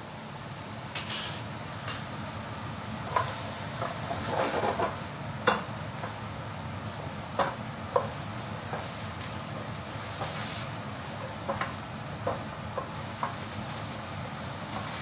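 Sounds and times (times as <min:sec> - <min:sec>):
chickpeas sizzling in oil: 0:02.3 - 0:15.0
wooden spoon knocking on pan: 0:11.4 - 0:13.4.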